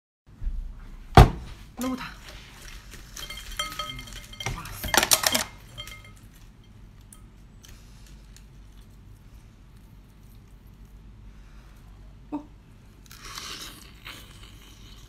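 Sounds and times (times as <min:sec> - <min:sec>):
utensil clinking on ceramic bowl: 0:02.6 - 0:07.4.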